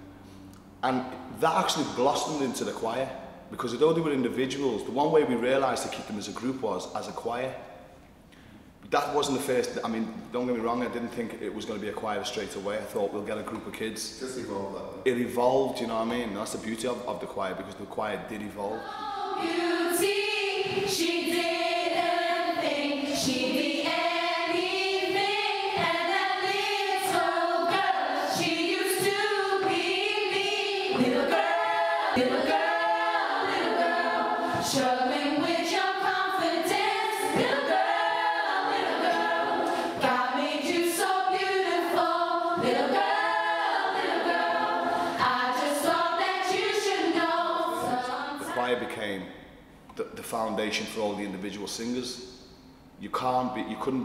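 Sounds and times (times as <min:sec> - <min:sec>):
youth choir singing: 0:18.7 - 0:49.2.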